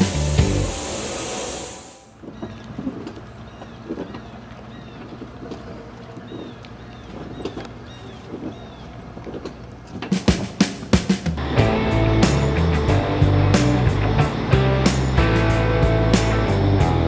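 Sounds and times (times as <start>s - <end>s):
paint spray gun hissing: 0.0s - 2.2s
outdoor air noise: 0.0s - 17.0s.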